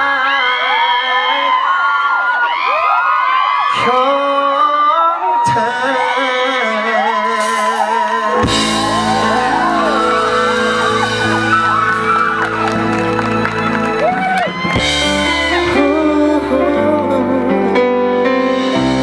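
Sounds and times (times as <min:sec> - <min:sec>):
man singing into microphone: 0:00.0 - 0:01.7, 0:03.7 - 0:10.8, 0:15.0 - 0:18.7
rock band playing: 0:07.1 - 0:19.0.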